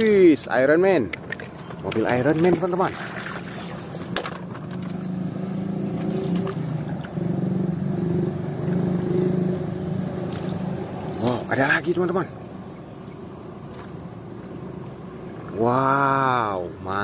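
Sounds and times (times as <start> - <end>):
water splashing: 0.0 - 5.0, 5.8 - 7.2
small boat motor humming: 0.6 - 16.1.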